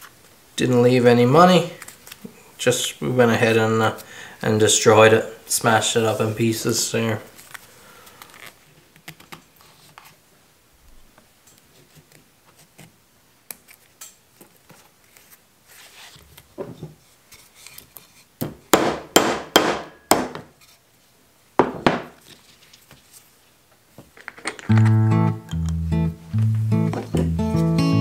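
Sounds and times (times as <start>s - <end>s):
hammer striking metal rivet: 18.8s - 20.4s.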